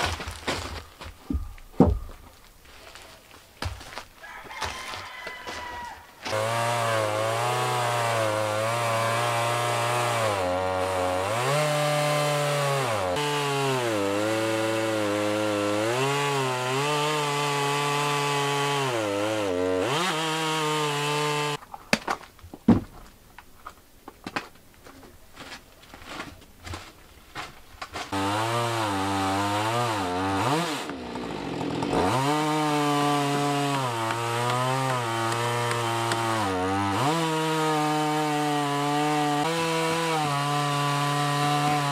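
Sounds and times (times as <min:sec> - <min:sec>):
chainsaw ripping a log: 0:04.9 - 0:21.6, 0:25.4 - 0:41.9.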